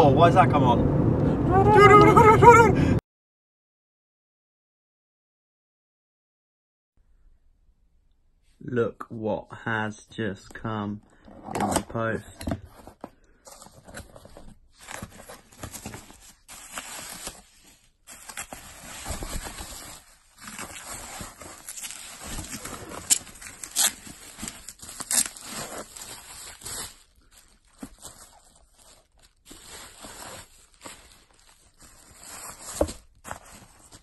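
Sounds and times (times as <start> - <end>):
bubble wrap rustling and crinkling: 13.5 - 34.0.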